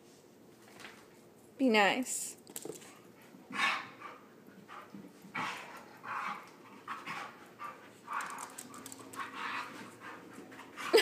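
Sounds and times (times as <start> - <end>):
dogs panting hard: 3.0 - 11.0.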